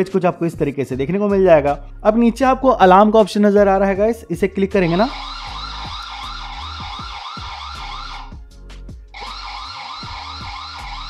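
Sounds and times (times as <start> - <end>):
warbling alarm siren: 4.9 - 8.4, 9.2 - 11.0.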